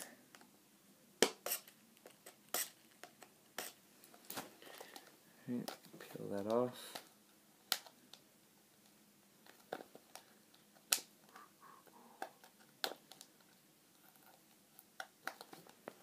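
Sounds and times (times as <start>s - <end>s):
plastic packaging clicks and crackles: 12.2s - 16.0s.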